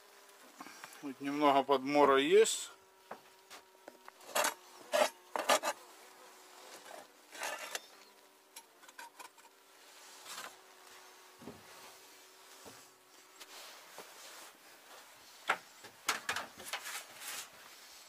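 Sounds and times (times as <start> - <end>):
faint buzz of bees: 0.0 - 18.0
metal tool scraping wood: 4.2 - 5.8, 6.8 - 8.0.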